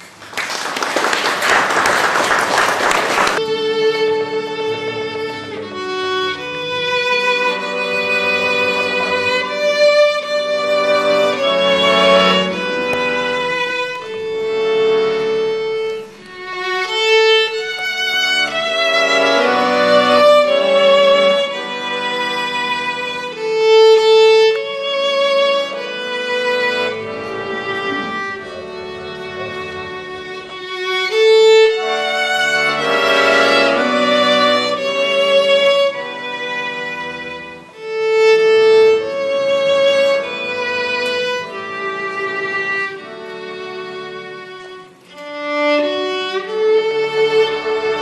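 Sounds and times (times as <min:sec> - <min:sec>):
applause: 0:00.0 - 0:03.4
violin melody: 0:01.9 - 0:48.0
accordion held notes: 0:03.2 - 0:24.8, 0:25.4 - 0:37.8.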